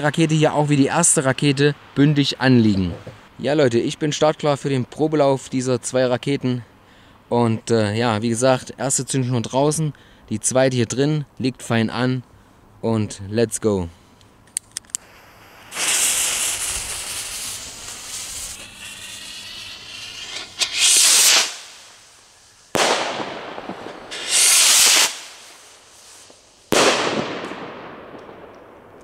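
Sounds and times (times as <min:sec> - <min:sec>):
rocket lifting off with hiss: 0:15.0 - 0:27.4
firework bursts and bangs: 0:15.0 - 0:29.0.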